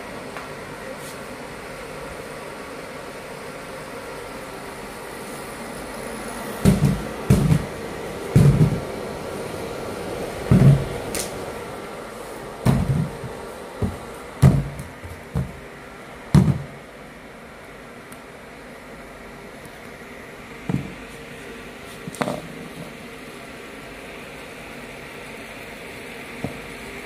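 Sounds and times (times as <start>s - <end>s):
machine fans and conveyor hum: 0.0s - 27.0s
dull thumps and knocks: 6.6s - 8.9s, 10.5s - 11.0s, 12.6s - 15.7s, 16.4s - 16.8s.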